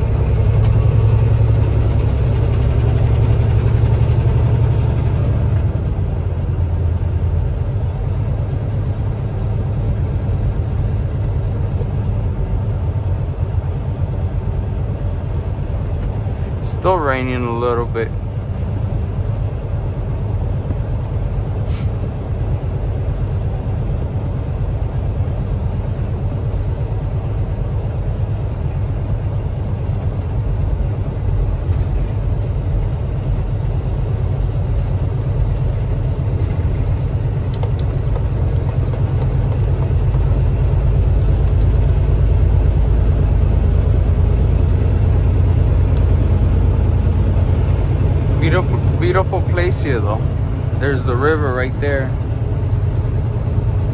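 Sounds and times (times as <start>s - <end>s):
truck engine and road rumble: 0.0s - 53.9s.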